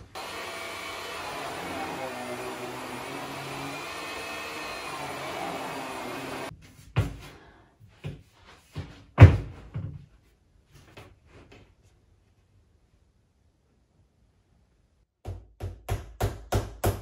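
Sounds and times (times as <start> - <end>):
vacuum cleaner on carpet: 0.0 - 6.5.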